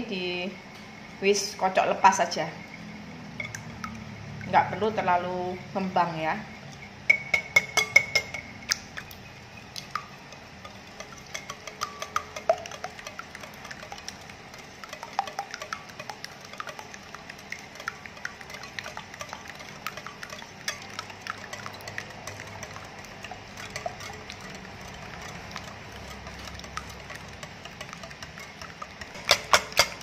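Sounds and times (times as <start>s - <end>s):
liquid swishing: 7.1s - 30.0s
wire whisk clicking against glass bowl: 9.8s - 30.0s.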